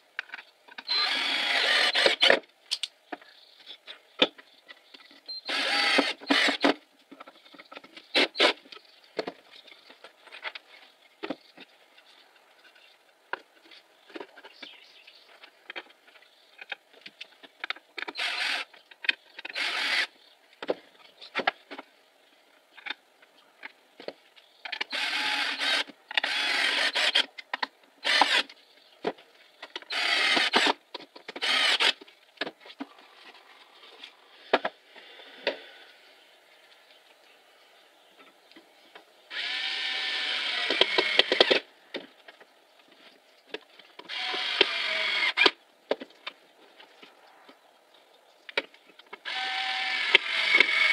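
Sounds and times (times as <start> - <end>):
cordless drill driving screws: 0.9 - 2.4, 5.4 - 6.8, 18.1 - 18.7, 19.5 - 20.1, 24.9 - 27.3, 28.0 - 28.5, 29.9 - 30.8, 31.4 - 32.0, 39.3 - 41.6, 44.1 - 45.6, 49.2 - 50.9.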